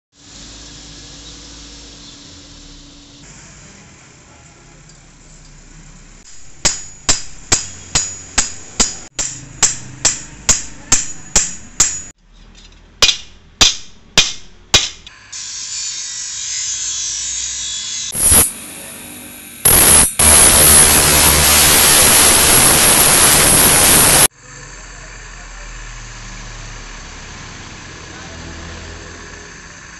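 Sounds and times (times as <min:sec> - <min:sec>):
hammer ringing on steel: 0:06.6 - 0:12.1
bench grinder grinding: 0:15.4 - 0:24.3.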